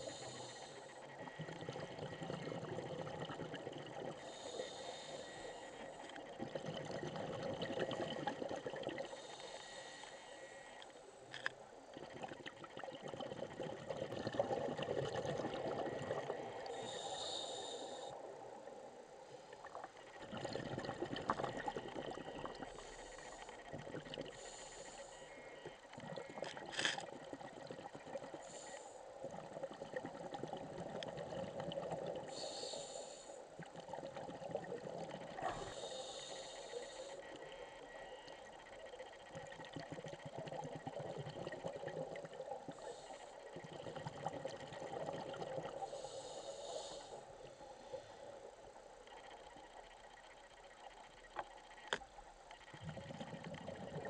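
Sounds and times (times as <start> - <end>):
regulator inhalation hiss: 0.0 - 1.2, 4.2 - 6.1, 9.1 - 11.2, 16.7 - 18.2, 24.3 - 25.7, 28.3 - 29.2, 32.3 - 33.6, 35.6 - 37.4, 42.7 - 43.6, 45.8 - 48.4
exhaled bubbles rumbling: 1.2 - 4.2, 6.2 - 9.1, 11.9 - 16.8, 19.6 - 22.8, 23.6 - 24.4, 29.2 - 32.3, 33.6 - 35.8, 39.0 - 42.8, 43.5 - 45.9, 52.6 - 54.0.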